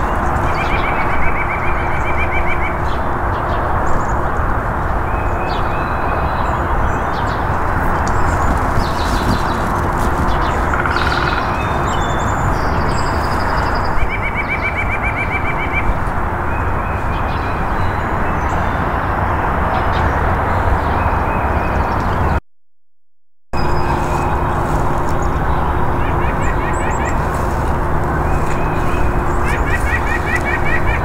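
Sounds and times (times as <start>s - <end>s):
bird singing rapid notes: 0.0s - 3.1s, 5.1s - 18.9s, 23.6s - 31.0s
steady rushing noise: 23.6s - 31.0s.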